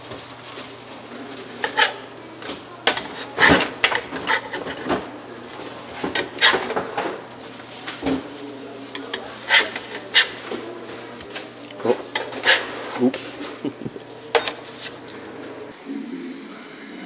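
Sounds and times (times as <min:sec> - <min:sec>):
spatula scraping a pan: 0:01.4 - 0:07.0, 0:08.8 - 0:13.6.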